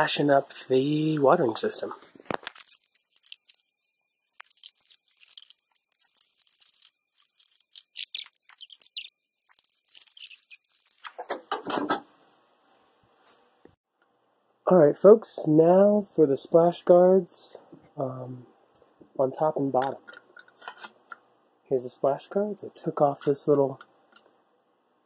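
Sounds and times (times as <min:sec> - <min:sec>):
small parts clicking and rattling: 0:02.2 - 0:11.2.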